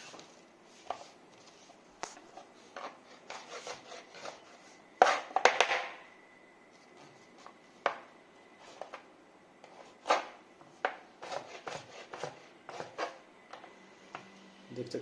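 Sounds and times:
knife cutting on wooden board: 2.7s - 5.4s, 9.6s - 13.2s.

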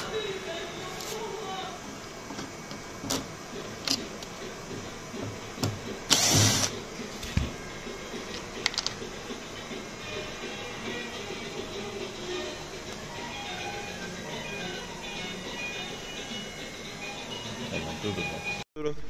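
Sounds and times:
cordless drill whirring: 6.1s - 6.8s
plastic parts clicking and knocking: 8.3s - 9.0s.

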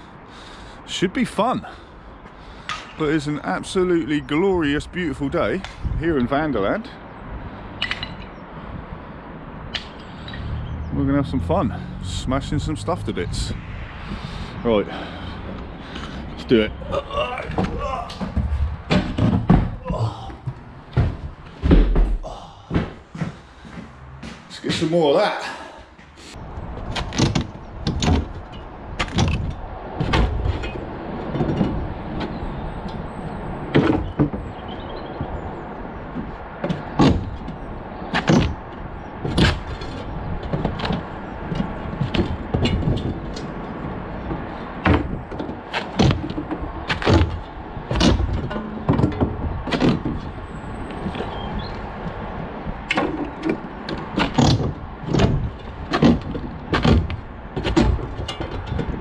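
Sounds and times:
steady background noise: 0.0s - 59.0s
roof tiles knocked and clattering: 17.5s - 23.9s, 26.8s - 59.0s.

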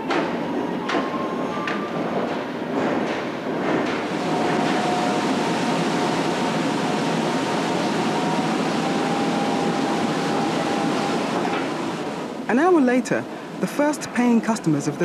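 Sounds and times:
roller coaster machinery running: 0.0s - 15.0s
faint high whine: 4.1s - 13.2s.

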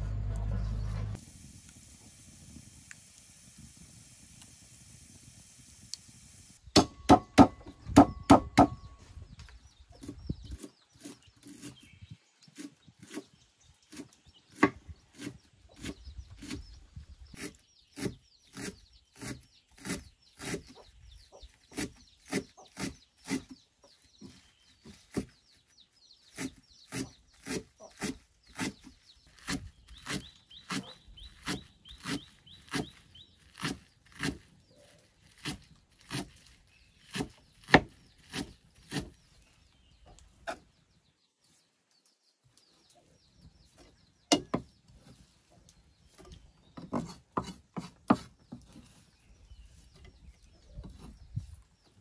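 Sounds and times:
wood fire crackling: 1.1s - 6.6s
knife chopping on wooden block: 37.1s - 39.1s, 46.8s - 48.3s.

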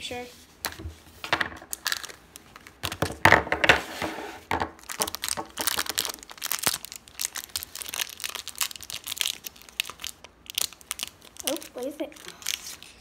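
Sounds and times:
plastic wrapper crinkling and tearing: 1.6s - 3.2s, 4.7s - 13.0s.

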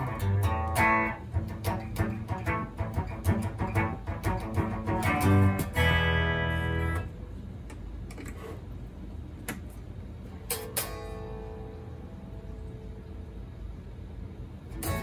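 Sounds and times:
plucked electric guitar notes: 0.0s - 7.1s, 14.8s - 15.0s.

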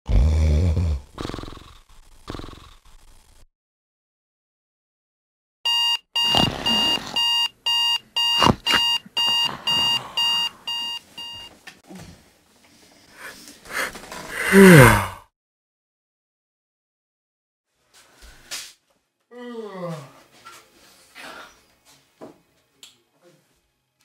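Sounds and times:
person groaning: 0.1s - 1.4s, 13.2s - 15.3s, 19.3s - 20.2s
alarm clock beeping: 5.7s - 11.5s.

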